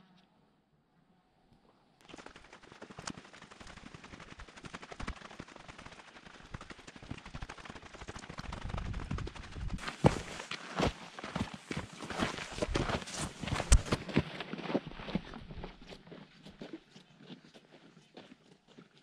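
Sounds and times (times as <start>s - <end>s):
footsteps crunching on gravel: 9.8s - 18.8s.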